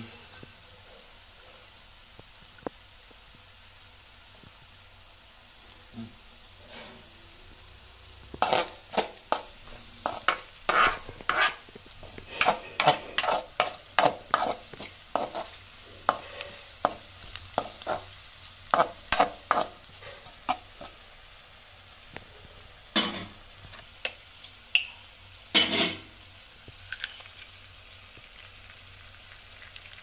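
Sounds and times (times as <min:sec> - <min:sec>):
faint oil sizzle: 0:00.0 - 0:30.0
metal spoon scraping a metal pan: 0:08.4 - 0:17.0, 0:17.6 - 0:18.1, 0:18.7 - 0:20.9, 0:25.6 - 0:26.1.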